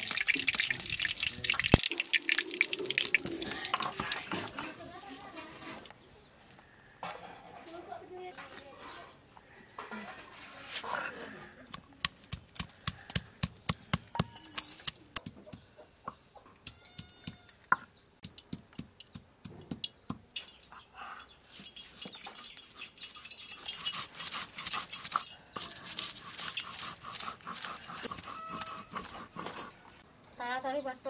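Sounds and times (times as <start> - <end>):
scraping on wooden board: 23.8 - 29.8
hen clucking: 27.7 - 29.6.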